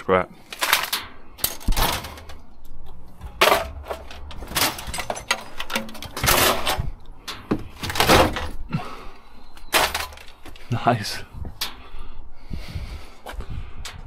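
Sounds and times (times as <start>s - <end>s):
scrap parts clattering in a bin: 0.5s - 2.4s, 3.2s - 6.9s, 7.8s - 8.6s, 9.7s - 10.4s.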